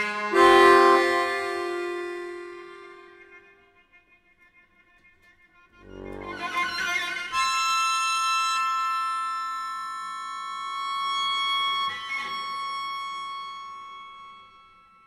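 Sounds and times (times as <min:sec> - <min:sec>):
accordion holding a chord: 0:00.0 - 0:03.5.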